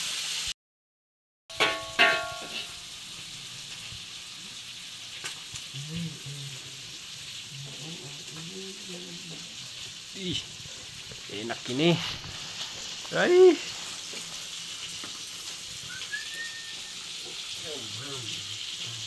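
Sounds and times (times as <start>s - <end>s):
chicken sizzling in a wok: 0.0s - 0.6s, 1.5s - 19.0s
metallic wok clanks: 1.5s - 3.0s.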